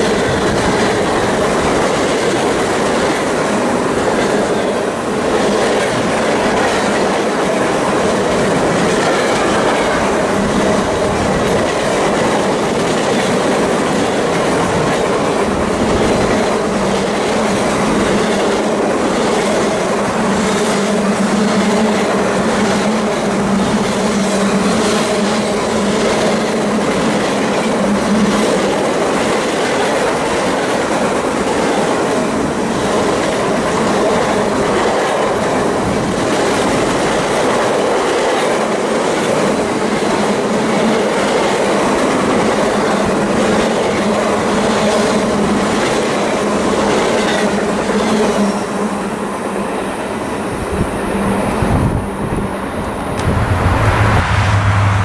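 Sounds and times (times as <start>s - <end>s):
train wheels rumbling on rail: 0.0s - 55.0s
low hum: 53.2s - 55.0s.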